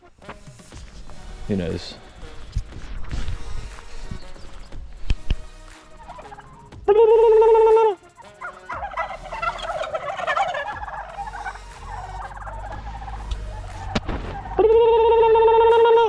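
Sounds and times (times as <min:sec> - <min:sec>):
loud steady turkey call: 0:05.7 - 0:16.0
turkeys gobbling: 0:05.8 - 0:16.0.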